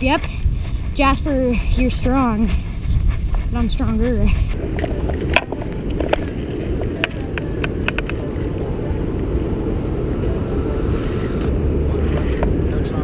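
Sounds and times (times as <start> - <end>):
low rumble: 0.0 - 13.0
camera handling clicks and scrapes: 4.6 - 9.5.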